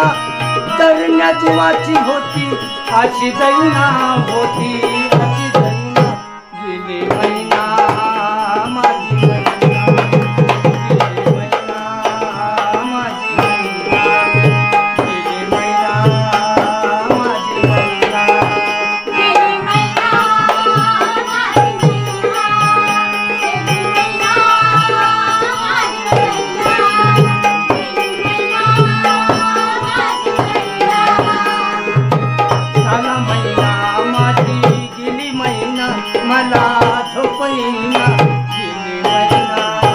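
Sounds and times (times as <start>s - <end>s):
fast hand drum rhythm: 0.0s - 6.2s, 7.0s - 39.9s
electronic keyboard melody: 0.0s - 39.9s
hand cymbals keeping time: 7.2s - 39.9s.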